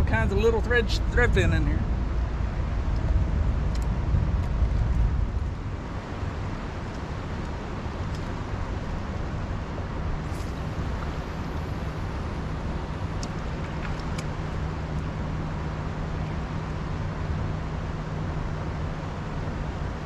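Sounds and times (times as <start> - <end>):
wind on microphone: 1.0 - 6.0.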